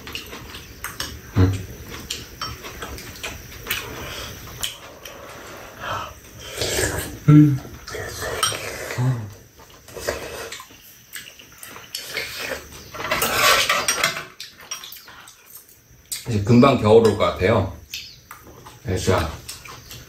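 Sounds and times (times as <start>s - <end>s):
people eating: 0.0s - 20.0s
metal spoons clinking on bowls: 13.0s - 17.4s.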